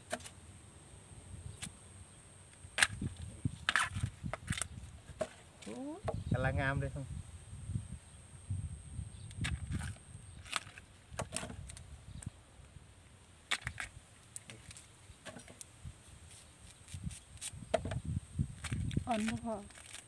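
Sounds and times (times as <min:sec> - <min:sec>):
knife cutting bamboo shoot: 0:02.7 - 0:05.8, 0:16.3 - 0:18.0.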